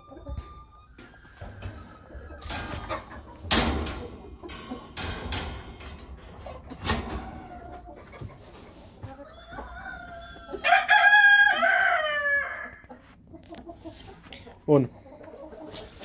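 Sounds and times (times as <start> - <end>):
rooster crowing: 9.2 - 12.9.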